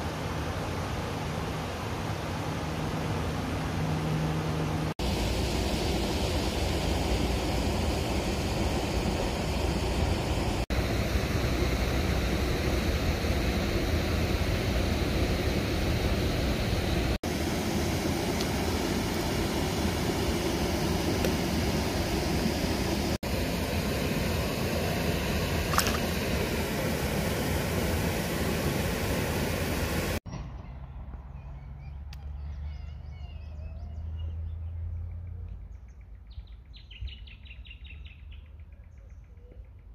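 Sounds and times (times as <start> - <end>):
wind: 0.0 - 39.9
moving water: 24.2 - 30.2.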